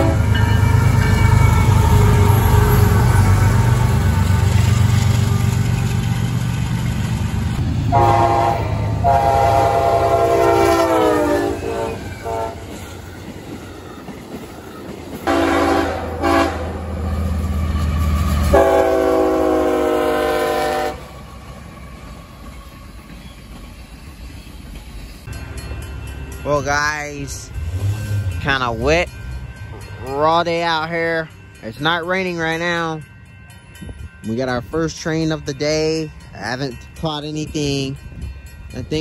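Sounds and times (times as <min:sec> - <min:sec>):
locomotive horn blasts: 0:00.0 - 0:00.4, 0:07.9 - 0:12.8, 0:15.3 - 0:16.9, 0:18.5 - 0:21.1
freight locomotives passing: 0:00.0 - 0:39.0
train wheel noise: 0:00.0 - 0:39.0.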